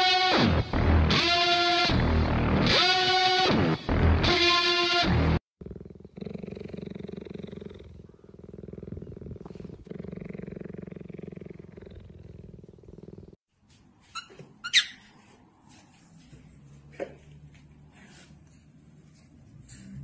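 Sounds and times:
cheetah purring: 5.6s - 13.4s.

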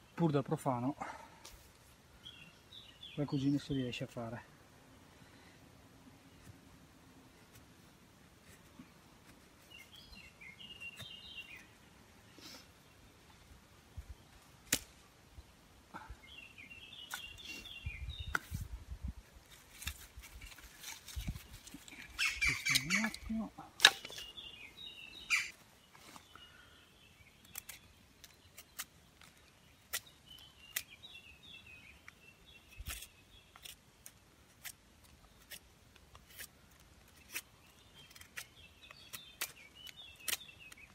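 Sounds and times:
birds chirping: 0.0s - 6.6s, 8.7s - 18.6s, 20.5s - 34.1s
knife shaving wooden stick: 32.7s - 40.9s.

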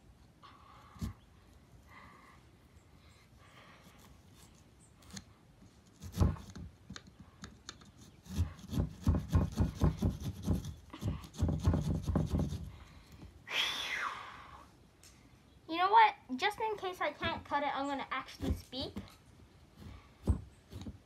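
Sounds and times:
saw cutting pumpkin rind: 3.8s - 6.7s, 7.8s - 12.8s, 19.7s - 21.0s.

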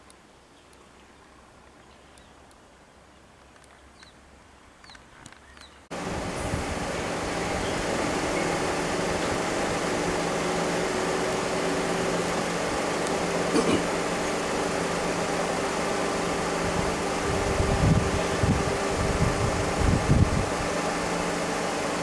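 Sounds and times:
vehicle engine idling: 5.9s - 22.0s.

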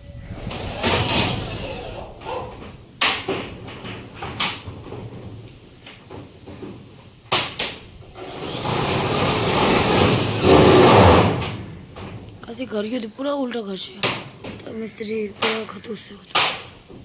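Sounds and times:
knocks on corrugated roof: 6.0s - 7.8s
rough scraping noise: 8.2s - 11.6s.

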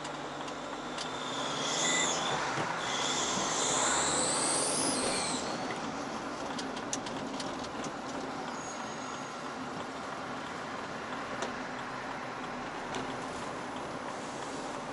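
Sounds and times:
vehicle road and engine noise: 0.0s - 14.9s
high-pitched squeal: 0.3s - 6.4s, 8.5s - 9.4s.

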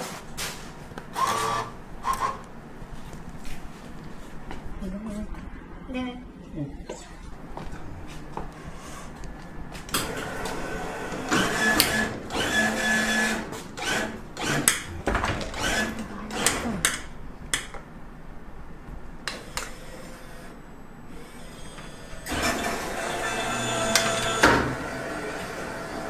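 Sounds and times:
claw machine motors whirring: 1.1s - 2.5s, 8.5s - 17.2s, 19.2s - 26.0s.

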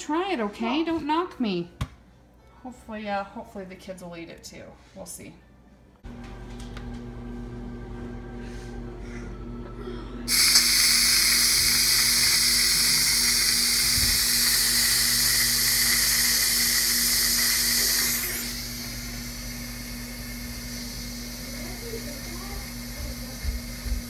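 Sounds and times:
steam hissing from valve: 10.3s - 24.0s.

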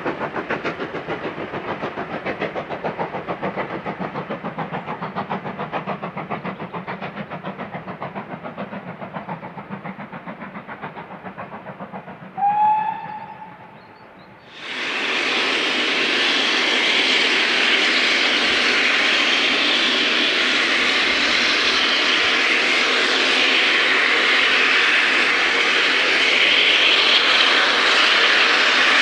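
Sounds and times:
steam locomotive exhaust beats: 0.0s - 29.0s
steam whistle: 12.4s - 13.7s.

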